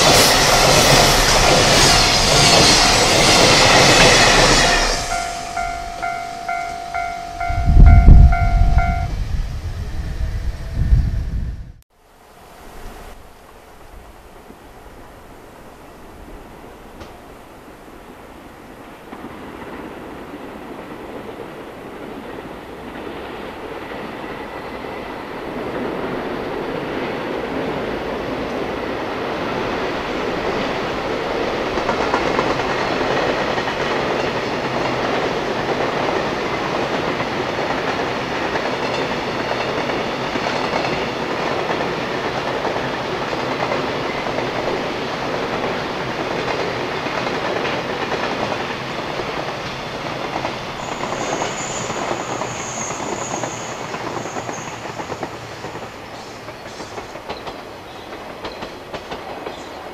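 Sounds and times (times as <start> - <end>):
train wheels clattering: 0.0 - 9.1, 29.3 - 59.9
high wheel squeal: 0.0 - 9.2, 50.8 - 55.2.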